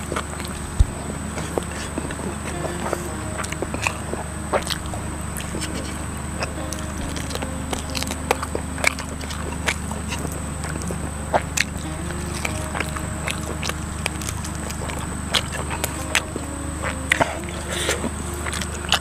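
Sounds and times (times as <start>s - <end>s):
chewing and lip-smacking: 0.0s - 19.0s
soft background music: 0.0s - 19.0s.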